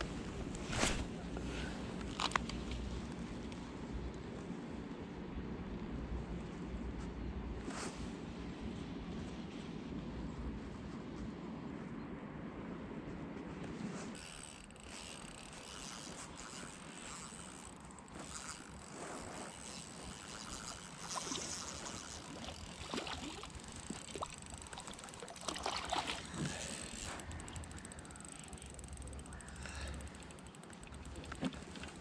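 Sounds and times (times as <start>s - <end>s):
fishing reel ticking: 14.2s - 25.5s, 26.2s - 32.0s
light water splashing: 19.4s - 27.2s, 30.1s - 32.0s.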